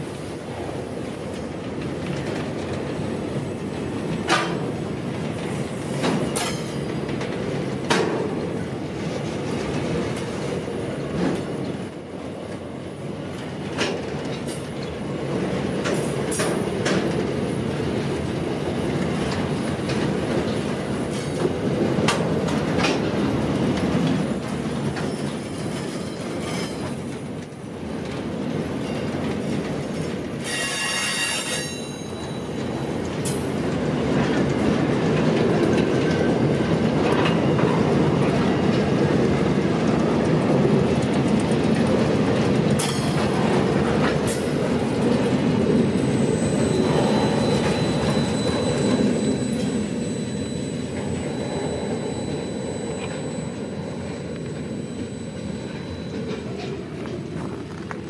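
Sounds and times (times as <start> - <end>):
train wheels rumbling on rail: 0.0 - 58.0
metallic wheel squeal: 30.4 - 32.6, 45.6 - 56.8.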